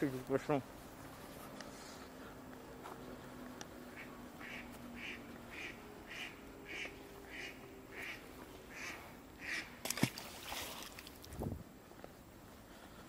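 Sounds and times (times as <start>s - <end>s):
bird calling: 3.8s - 9.8s
fish splashing into water: 9.8s - 11.3s.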